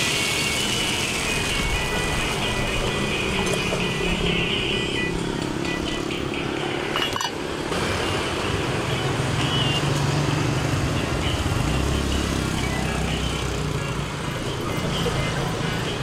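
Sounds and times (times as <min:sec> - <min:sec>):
motorcycle engines passing: 0:00.0 - 0:16.0
street traffic noise: 0:00.0 - 0:16.0.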